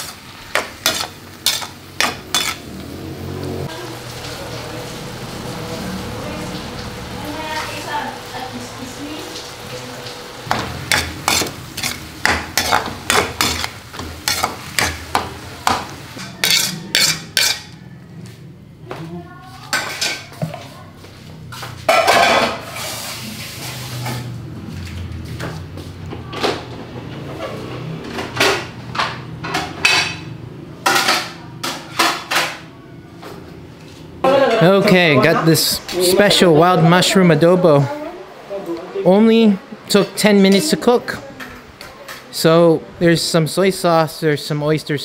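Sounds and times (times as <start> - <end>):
utensil scraping pan: 0.0 - 2.7, 10.9 - 17.8
food sizzling: 0.0 - 18.0, 21.5 - 24.4
metal utensil clanking on pot: 0.5 - 2.6, 16.2 - 17.8.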